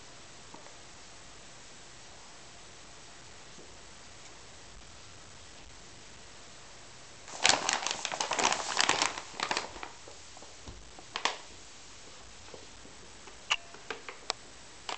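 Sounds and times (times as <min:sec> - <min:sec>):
cat scrambling in bag: 0:07.3 - 0:10.0
paper bag crinkling: 0:07.3 - 0:11.5.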